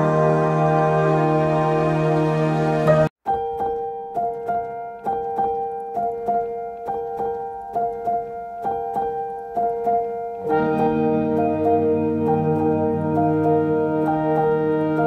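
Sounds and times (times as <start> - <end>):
keyboard notes over held tones: 0.0 - 15.0.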